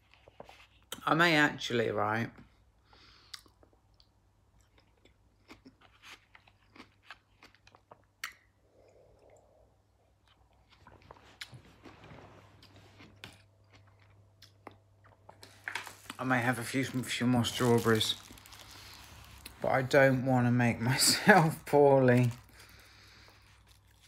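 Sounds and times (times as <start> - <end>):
chewing with wet clicks: 3.2 - 9.5, 13.0 - 15.5.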